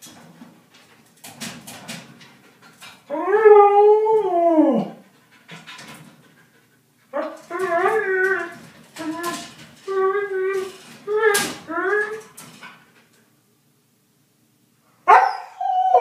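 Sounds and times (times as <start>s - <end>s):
wire crate rattling: 0.0s - 3.0s, 7.2s - 13.1s
dog howling: 3.1s - 5.1s, 7.1s - 12.2s, 15.1s - 16.0s.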